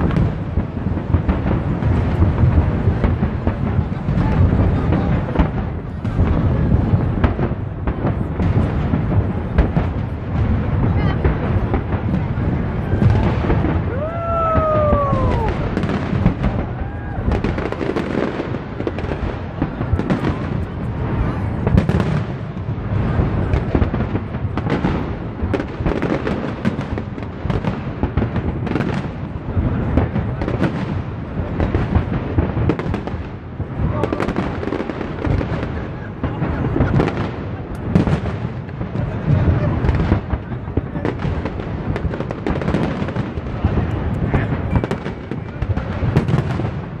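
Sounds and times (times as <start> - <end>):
fireworks bursts and crackles: 0.0 - 47.0
firework whistle: 11.9 - 18.5.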